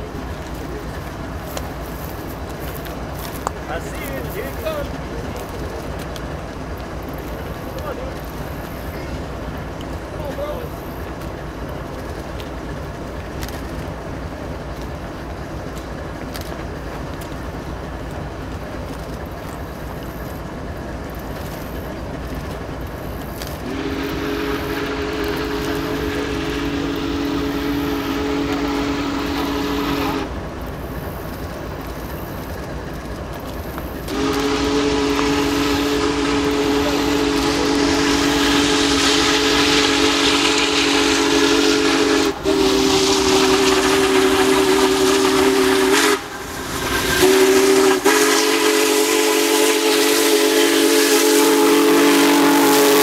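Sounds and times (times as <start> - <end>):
steady background rumble: 0.0 - 41.0
steam whistle chord: 23.6 - 30.3, 34.1 - 53.0.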